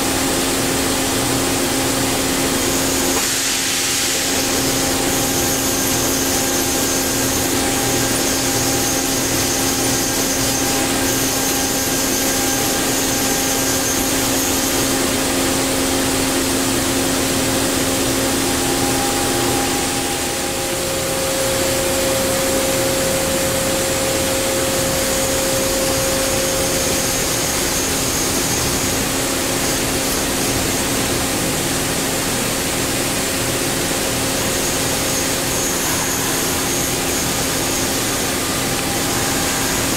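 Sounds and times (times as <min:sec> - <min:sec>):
machine humming: 0:00.2 - 0:32.4
whining tones: 0:16.4 - 0:29.1.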